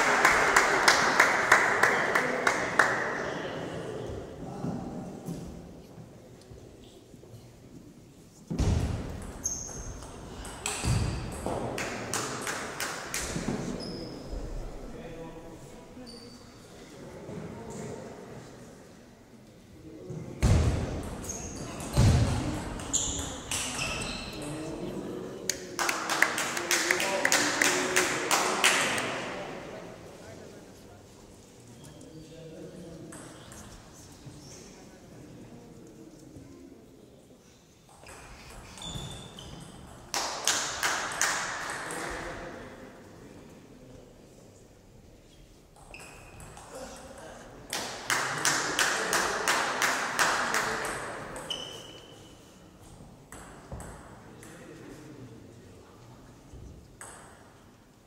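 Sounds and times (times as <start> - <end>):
spectators clapping: 0.0 - 3.1, 25.5 - 29.1.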